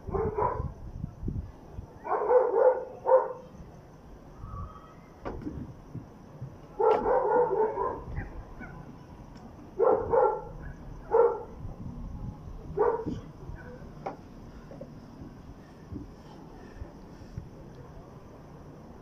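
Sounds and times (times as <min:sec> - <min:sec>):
dog barking: 0:00.0 - 0:00.7, 0:02.0 - 0:03.5, 0:06.8 - 0:08.8, 0:09.8 - 0:11.6, 0:12.8 - 0:13.8.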